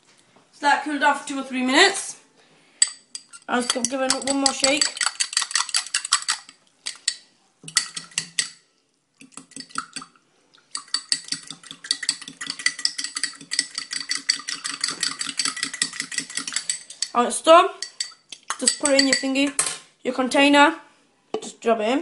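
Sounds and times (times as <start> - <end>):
metal utensil clinking in glass cup: 2.8 - 8.6, 10.8 - 17.2, 17.8 - 19.5.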